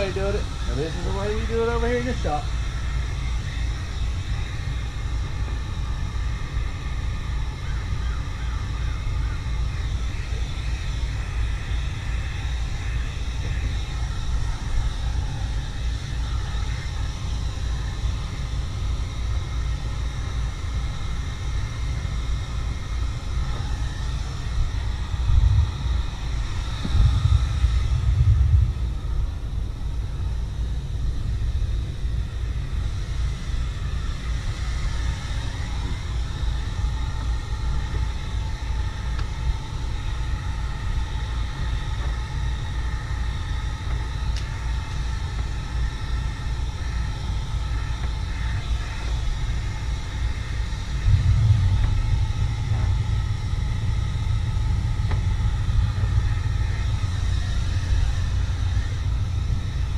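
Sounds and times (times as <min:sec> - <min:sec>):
heat gun fan whine: 0:00.0 - 0:59.9
low rumble: 0:20.9 - 0:32.9, 0:47.1 - 0:59.9.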